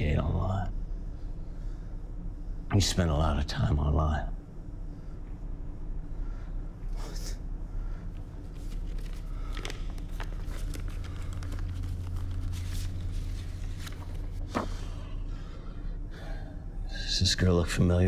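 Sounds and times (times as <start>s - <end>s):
steady low hum: 0.0s - 18.0s
paper shuffling and rustling: 8.4s - 15.1s.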